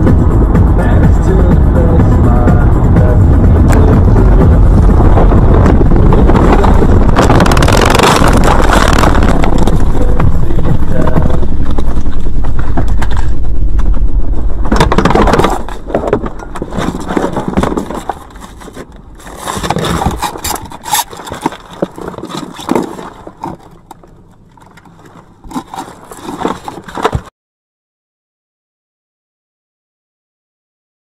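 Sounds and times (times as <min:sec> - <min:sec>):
branches knocking against car: 0:11.6 - 0:27.3
car scraping through bushes: 0:16.6 - 0:23.6.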